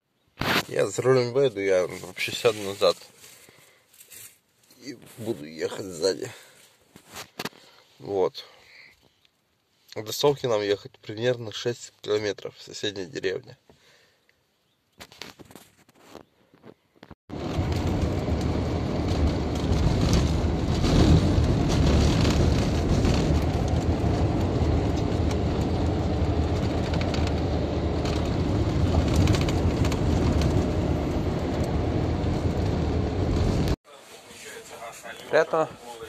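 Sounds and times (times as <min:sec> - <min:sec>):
engine and road noise: 0:17.3 - 0:33.8
knocks and rattles: 0:17.3 - 0:33.8.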